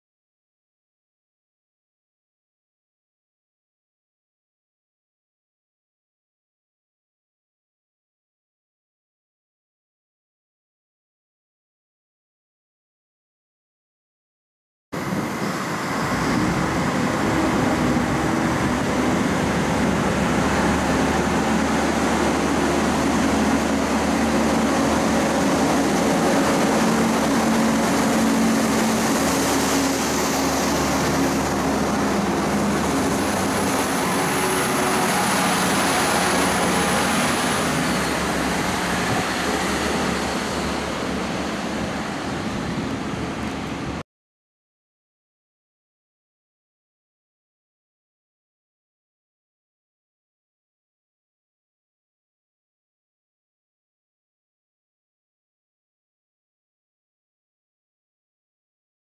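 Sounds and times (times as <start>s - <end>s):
diesel railcar engine drone: 15.0s - 44.0s
rail running noise: 15.0s - 44.0s.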